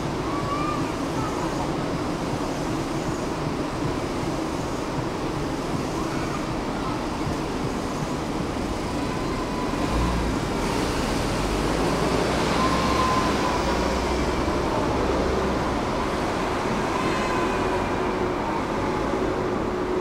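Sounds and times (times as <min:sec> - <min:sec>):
tram wheels rumbling on rails: 0:00.0 - 0:20.0.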